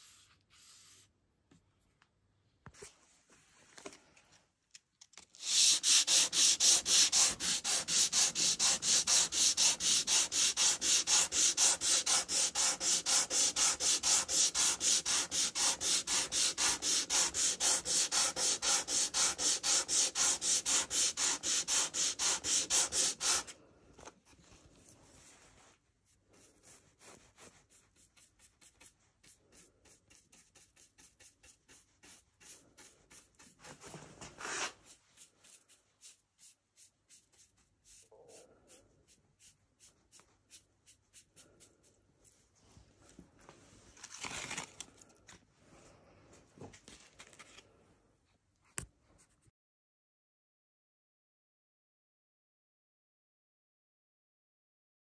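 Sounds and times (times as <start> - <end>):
sandpaper rubbing on wood: 5.4 - 23.6.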